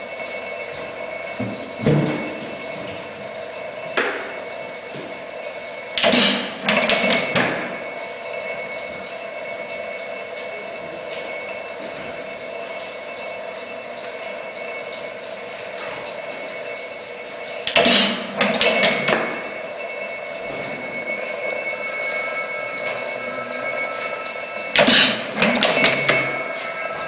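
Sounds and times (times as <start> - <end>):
flywheels whirring: 16.6 - 27.0.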